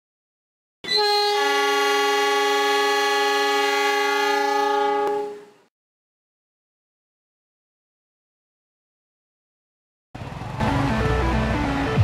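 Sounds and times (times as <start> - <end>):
train air horn: 0.8 - 5.7.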